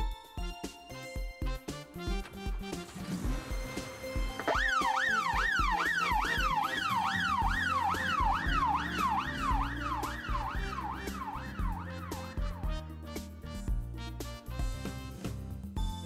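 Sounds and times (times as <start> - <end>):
music with steady beat: 0.0 - 16.0
siren yelping: 4.3 - 12.5.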